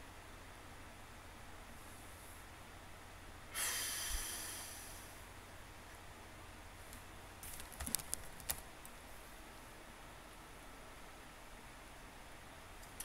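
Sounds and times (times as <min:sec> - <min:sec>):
low steady hum: 0:00.0 - 0:13.0
person blowing breath: 0:03.5 - 0:05.2.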